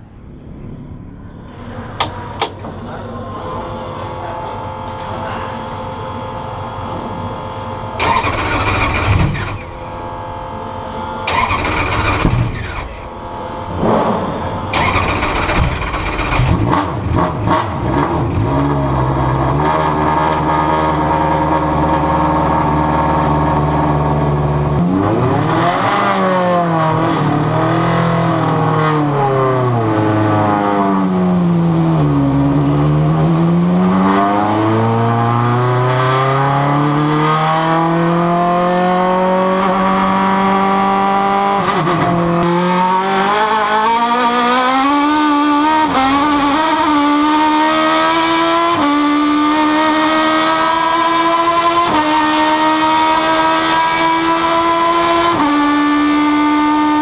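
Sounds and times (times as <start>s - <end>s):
race car engine running: 3.2s - 57.0s
race car engine cranking: 3.4s - 17.4s.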